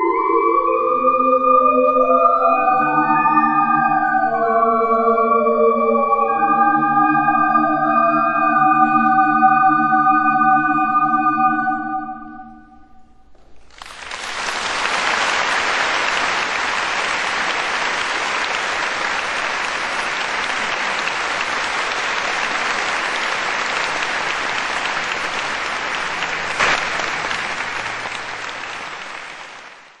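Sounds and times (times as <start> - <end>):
music: 0.0 - 13.4
audience applauding: 13.4 - 30.0.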